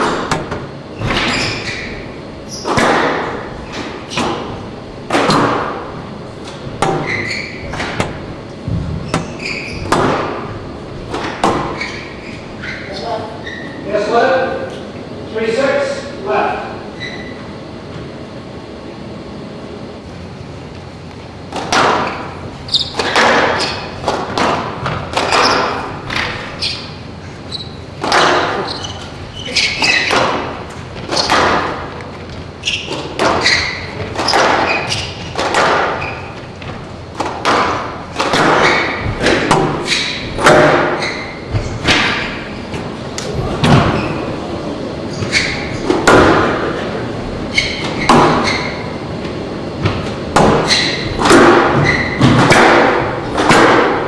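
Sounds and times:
squash ball thwacks: 2.6s - 3.4s, 23.0s - 26.4s, 28.0s - 28.6s, 34.1s - 36.0s, 37.2s - 41.0s, 49.9s - 54.0s.

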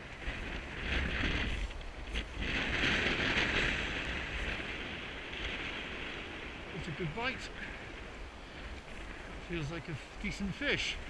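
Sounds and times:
surf breaking on shingle beach: 0.0s - 11.0s
wind buffeting microphone: 0.0s - 11.0s.

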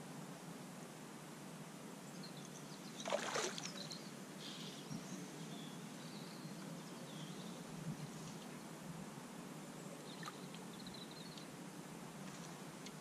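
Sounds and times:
faint outdoor background: 0.0s - 13.0s.

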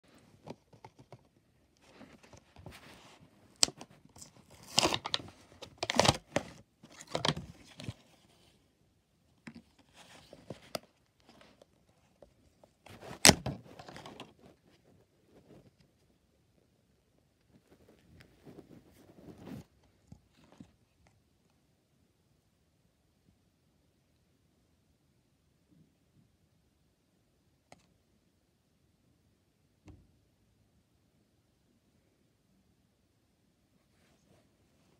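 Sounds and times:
plastic packaging crinkling: 3.7s - 8.0s
handling noise: 12.5s - 15.8s.

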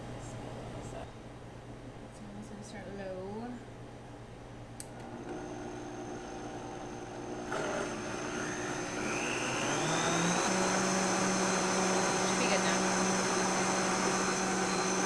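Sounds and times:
blender motor whine: 4.9s - 15.0s.

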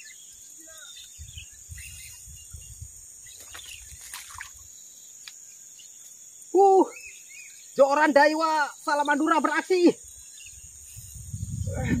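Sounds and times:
bird chirps: 0.0s - 11.7s
high-pitched insect drone: 0.0s - 12.0s
wind or handling bumps on microphone: 11.0s - 12.0s.

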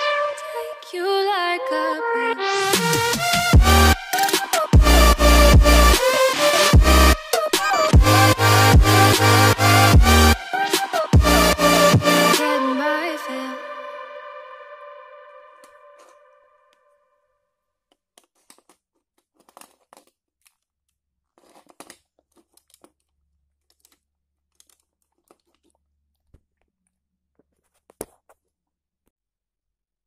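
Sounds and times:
plastic toy crackly rattles: 17.9s - 25.9s.

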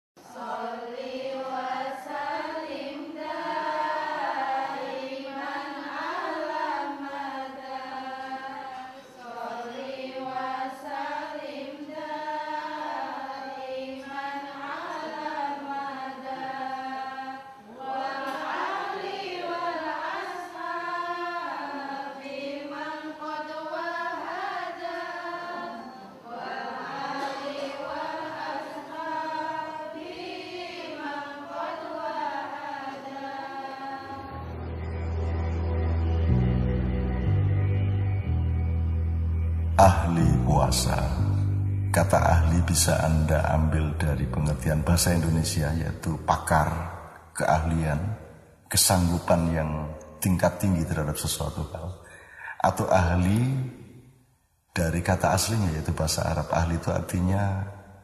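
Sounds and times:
person chanting: 39.7s - 53.8s, 54.8s - 57.8s.

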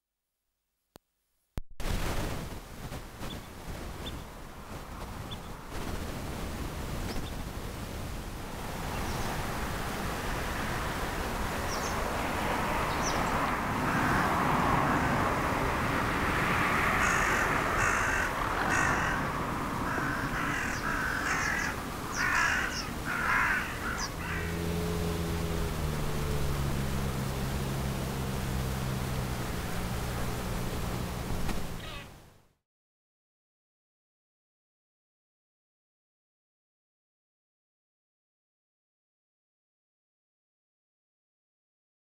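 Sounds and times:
outdoor background hiss: 1.8s - 32.6s
harsh caw-like bird calls: 13.8s - 14.4s, 16.7s - 24.7s, 31.8s - 32.1s.

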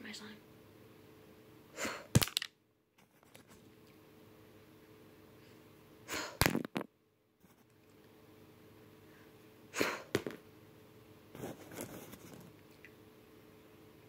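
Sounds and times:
girl blowing puffs of air: 6.1s - 6.4s, 9.7s - 10.2s.

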